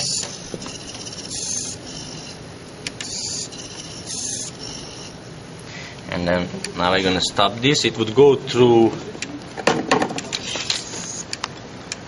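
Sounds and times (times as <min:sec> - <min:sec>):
servo motors whirring: 0:00.0 - 0:05.2, 0:10.3 - 0:11.4.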